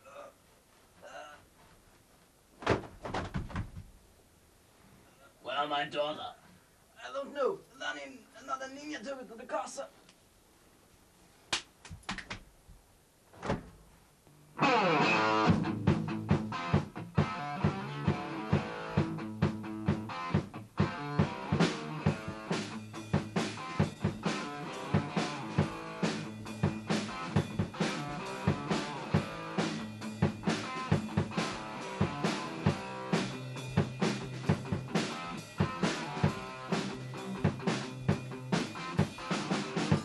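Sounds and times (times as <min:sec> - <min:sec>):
rock music with guitar and drums: 0:14.6 - 0:40.0.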